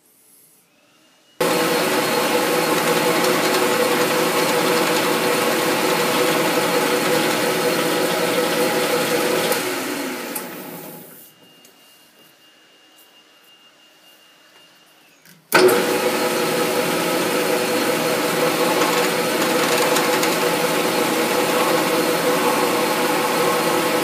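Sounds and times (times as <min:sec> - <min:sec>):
metal lathe whirring: 0:01.4 - 0:11.2, 0:15.5 - 0:24.0.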